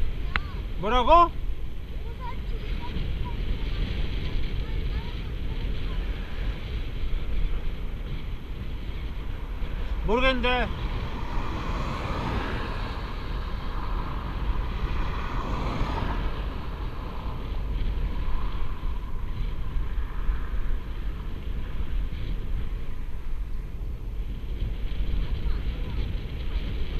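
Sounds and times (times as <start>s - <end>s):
wind rushing over microphone: 0.0s - 26.9s.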